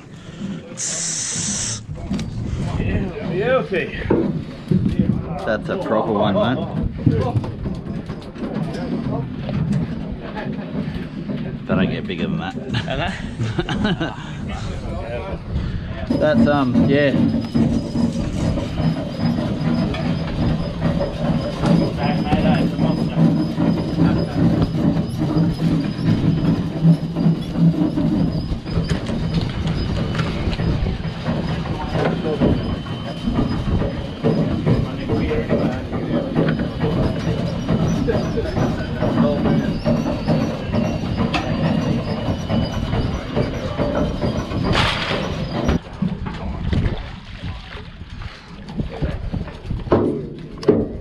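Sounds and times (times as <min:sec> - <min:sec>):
boat engine droning: 0:00.0 - 0:51.0
brief hiss: 0:00.8 - 0:01.8
knocks and rattles of deck work: 0:01.8 - 0:51.0.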